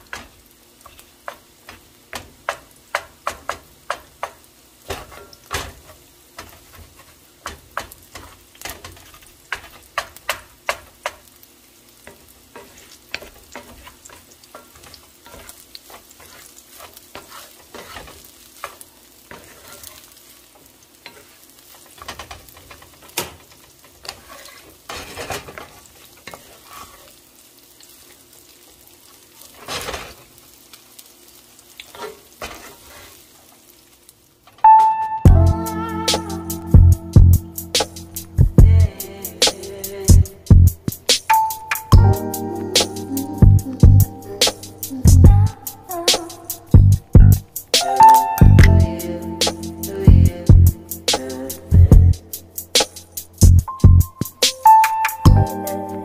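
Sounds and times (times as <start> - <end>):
light sizzle: 0.0 - 56.0
spatula scraping a pan: 4.9 - 11.2, 12.0 - 20.4, 21.0 - 27.2, 29.4 - 30.3, 31.8 - 33.6.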